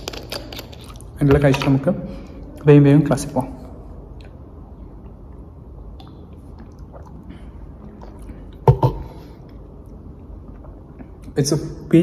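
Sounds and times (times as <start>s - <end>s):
sipping and swallowing: 4.1s - 11.4s.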